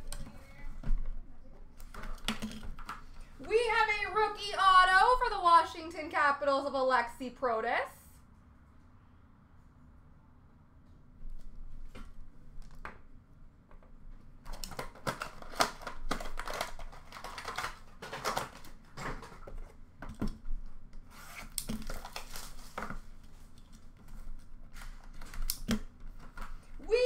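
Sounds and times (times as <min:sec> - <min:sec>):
packaging rustling and tearing: 0:14.4 - 0:19.6, 0:21.0 - 0:26.7.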